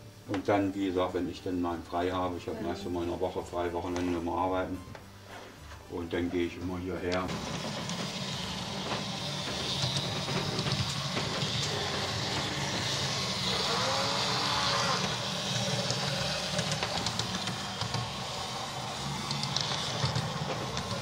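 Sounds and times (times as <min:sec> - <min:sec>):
model railway hum and hiss: 0:07.0 - 0:21.0.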